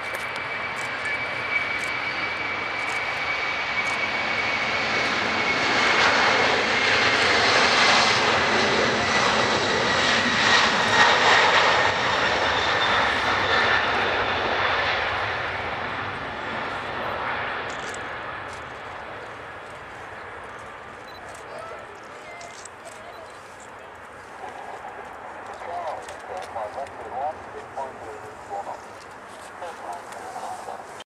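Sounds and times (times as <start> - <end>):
high engine whine: 0.0 - 21.2
jet engines at takeoff: 0.0 - 31.0.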